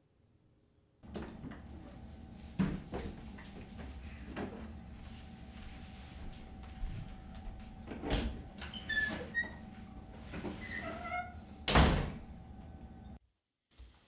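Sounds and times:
door squeaking: 0:08.1 - 0:09.7, 0:10.4 - 0:12.3
door shutting with a knock: 0:11.7 - 0:12.2.

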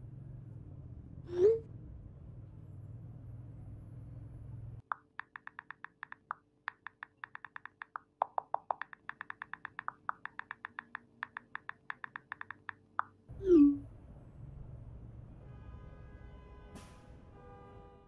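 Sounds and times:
phone keyboard tap clicks: 0:04.9 - 0:13.1.

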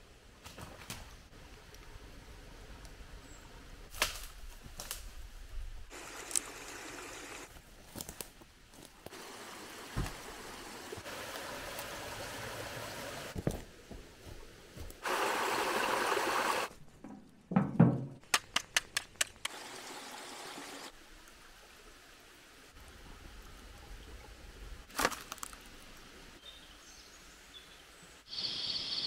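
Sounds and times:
waterfall splashing over rocks: 0:05.9 - 0:07.5, 0:09.1 - 0:13.4, 0:15.0 - 0:16.7, 0:19.5 - 0:22.7
stream running water: 0:05.9 - 0:07.6, 0:08.7 - 0:13.5, 0:14.2 - 0:16.7, 0:19.2 - 0:27.5
campfire crackles: 0:05.9 - 0:13.4.

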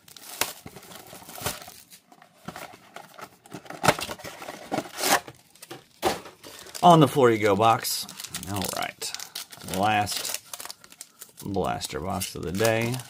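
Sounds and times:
cardboard box tearing: 0:03.7 - 0:05.3.

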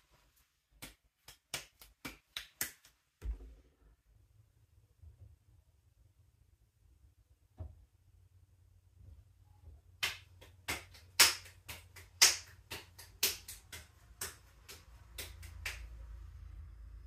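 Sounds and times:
hands slapping clay: 0:00.8 - 0:03.0, 0:10.0 - 0:15.9
low hum: 0:14.9 - 0:17.0.

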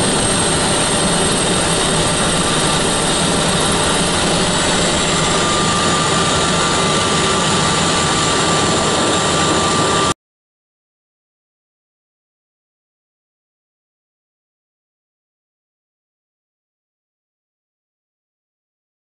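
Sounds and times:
high whining tones: 0:00.0 - 0:10.1
helicopter engines and rotor: 0:00.0 - 0:10.2.

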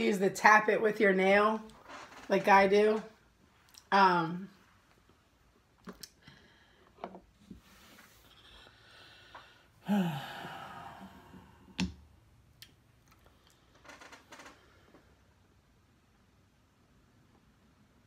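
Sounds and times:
breathy falling sigh: 0:08.9 - 0:11.8.

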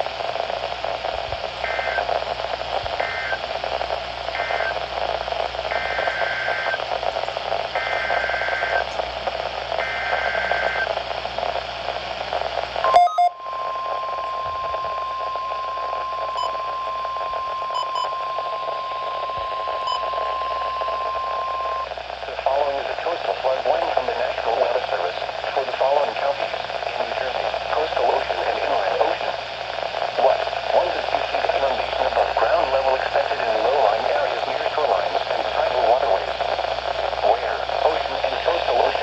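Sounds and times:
radio static: 0:00.0 - 0:39.0
steady warning alarm tone: 0:12.8 - 0:21.8.

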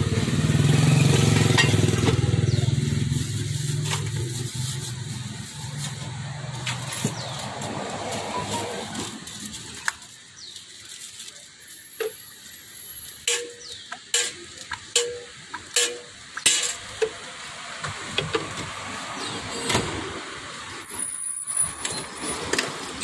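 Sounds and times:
metal ladle clinking on pot: 0:13.3 - 0:16.9.

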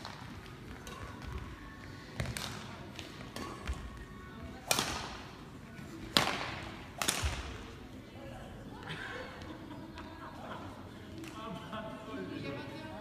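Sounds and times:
racket striking shuttlecock: 0:04.6 - 0:05.2, 0:06.1 - 0:07.6.

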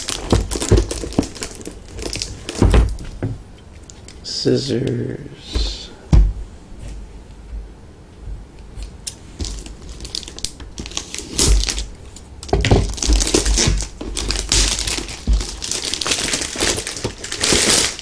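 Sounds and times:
plastic packaging crinkling: 0:00.0 - 0:04.2, 0:09.0 - 0:18.0.

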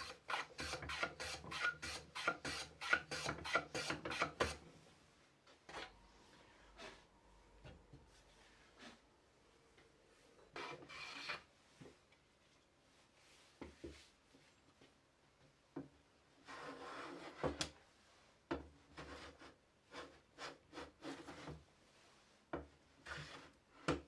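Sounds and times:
hand plane shaving wood: 0:00.0 - 0:04.6.

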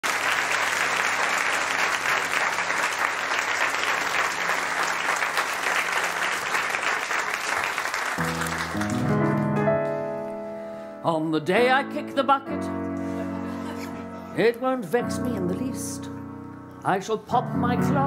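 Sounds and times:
audience applauding: 0:00.0 - 0:10.0
piano sustained chords: 0:08.2 - 0:18.0.

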